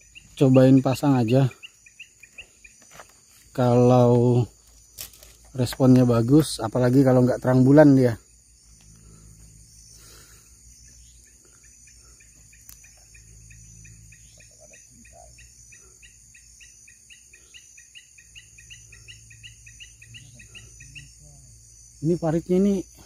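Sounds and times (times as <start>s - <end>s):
insects high-pitched trill: 0.0s - 23.0s
rhythmic insect chirping: 0.0s - 23.0s.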